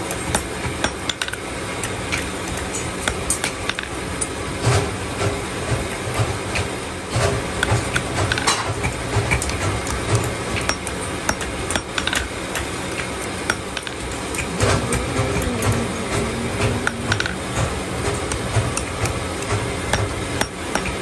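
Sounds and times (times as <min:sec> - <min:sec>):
hammer striking hot iron on anvil: 0:00.3 - 0:01.4, 0:10.6 - 0:12.6, 0:13.4 - 0:14.1, 0:16.8 - 0:17.6, 0:19.5 - 0:21.0.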